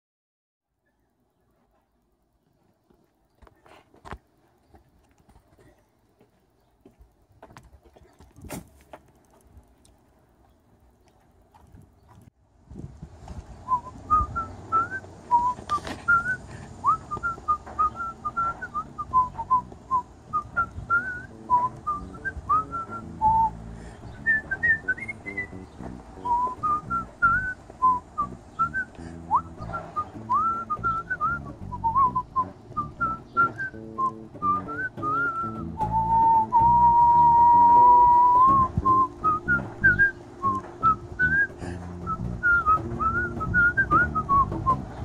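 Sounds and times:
man whistling a melody: 13.7 - 45.0.

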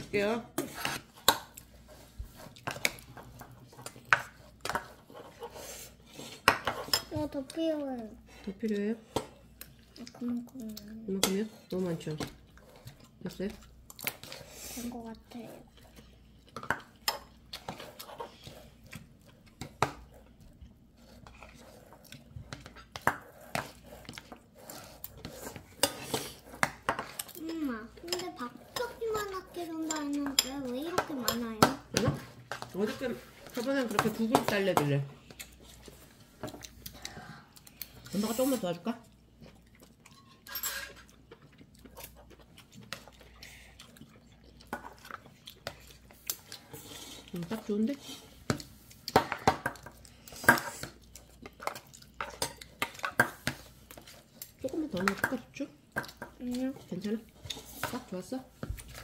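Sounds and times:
utensils scraping a bowl: 0.2 - 7.2, 21.0 - 34.9.

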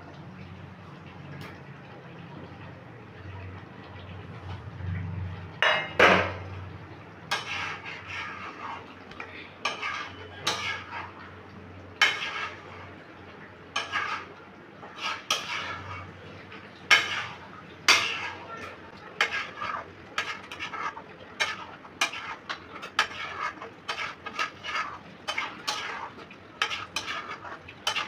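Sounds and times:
metal spatula scraping a metal pan: 7.3 - 9.0, 9.6 - 11.2, 12.0 - 12.9, 13.7 - 16.2, 16.9 - 28.0.

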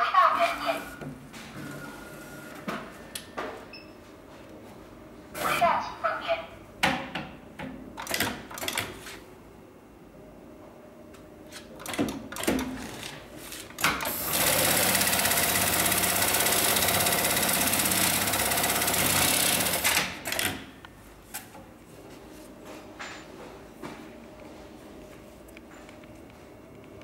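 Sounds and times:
sewing machine running: 14.0 - 20.5.

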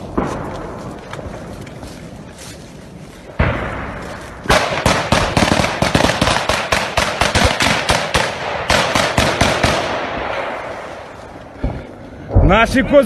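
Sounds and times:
gunfire: 3.4 - 11.1.

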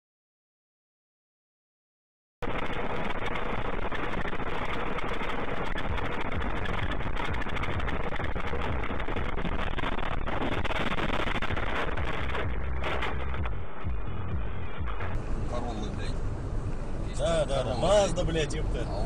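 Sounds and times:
car road noise on slush: 2.4 - 13.4, 15.1 - 19.0.

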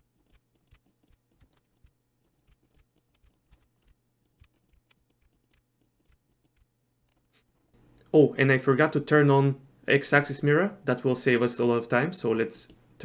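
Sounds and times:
keyboard key tapping: 0.1 - 6.7.

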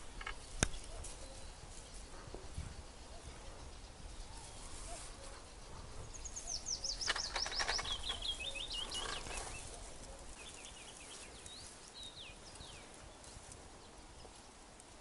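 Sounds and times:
rustles or clicks: 0.0 - 1.9, 6.7 - 11.8
songbird singing: 0.0 - 15.0.

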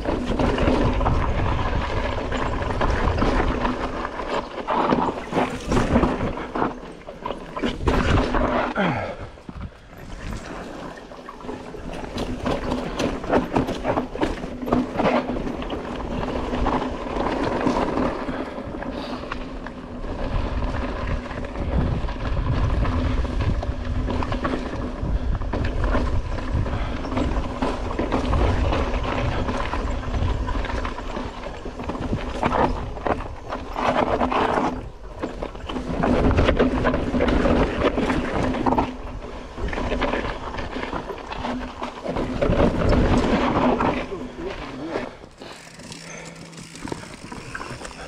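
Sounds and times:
wind buffeting microphone: 0.0 - 4.0, 20.0 - 44.4
bike knocking and rattling: 0.0 - 48.0
tyres rumbling over rock: 20.0 - 48.0.

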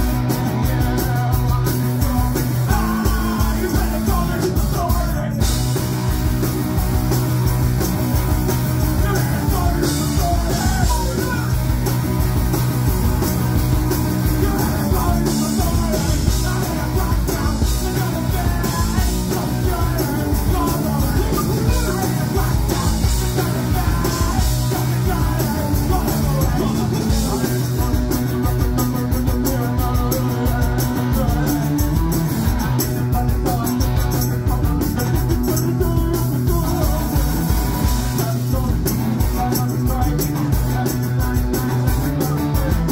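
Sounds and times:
bass guitar: 0.0 - 42.9
drum kit: 0.0 - 42.9
electric guitars: 0.0 - 42.9
shouted vocals: 8.9 - 11.6.

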